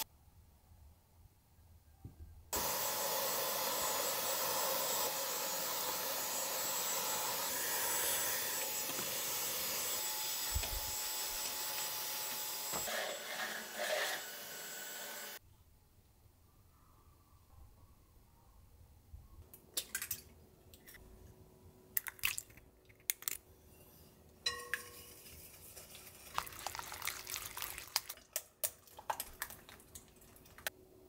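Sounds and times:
cordless vacuum whining: 2.6 - 15.4.

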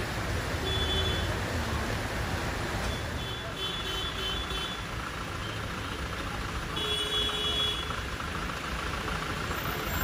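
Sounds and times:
traffic rumble: 0.0 - 10.0.

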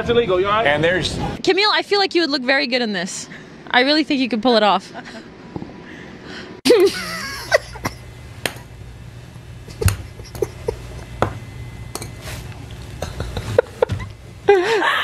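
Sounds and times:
low steady hum: 4.9 - 15.0
stifled giggles: 6.7 - 8.1, 9.7 - 11.2, 13.0 - 15.0.

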